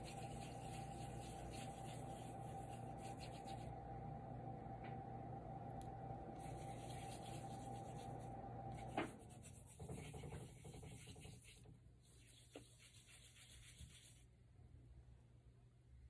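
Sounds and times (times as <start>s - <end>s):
hands rubbing together: 0.0s - 3.7s, 6.4s - 14.2s.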